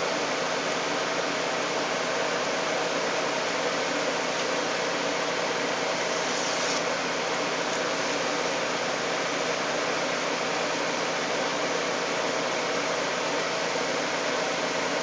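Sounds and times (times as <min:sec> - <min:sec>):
machine hum and hiss: 0:00.0 - 0:15.0
blade scratching cutting fabric: 0:05.9 - 0:06.9.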